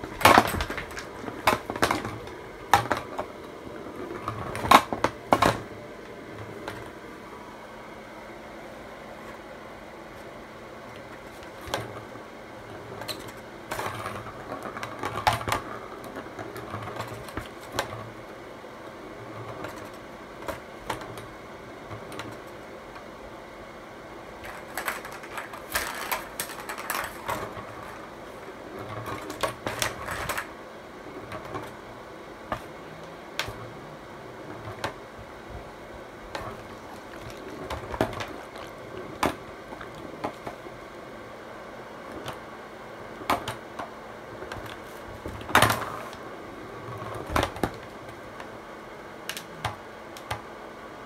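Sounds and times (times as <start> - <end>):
ball rattling around plastic track: 0.0 - 5.7, 12.7 - 18.2, 19.2 - 23.1, 24.4 - 30.6, 36.2 - 40.8, 43.2 - 48.6.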